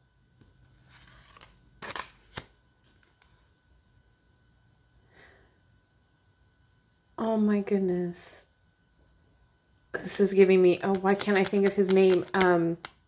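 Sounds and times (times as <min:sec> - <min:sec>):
cards rustling and sliding: 0:00.6 - 0:03.4, 0:10.8 - 0:13.0.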